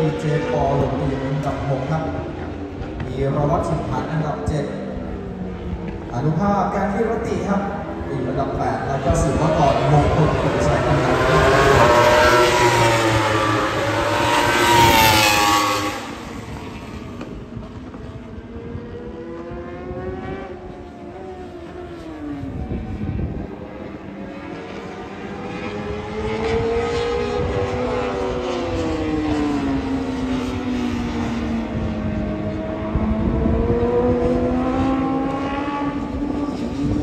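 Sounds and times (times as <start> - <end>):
superbike engines at high revs: 8.9 - 37.0.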